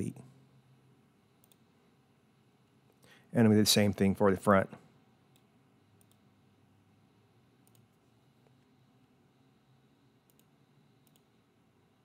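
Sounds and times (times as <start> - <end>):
faint computer mouse clicks: 1.4 - 1.6, 5.3 - 6.2, 7.6 - 8.6, 10.3 - 11.3.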